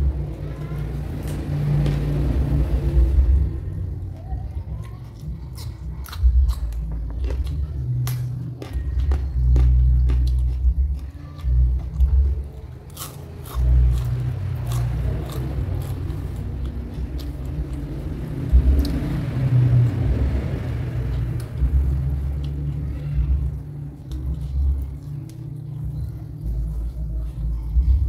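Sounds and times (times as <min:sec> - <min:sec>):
chewing crunchy vegetables: 0:00.0 - 0:28.0
deep uneven rumble: 0:13.6 - 0:28.0.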